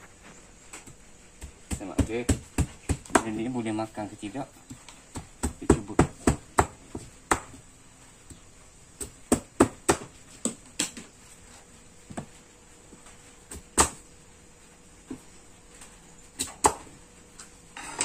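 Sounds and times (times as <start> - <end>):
knife chopping on cutting board: 1.4 - 3.4.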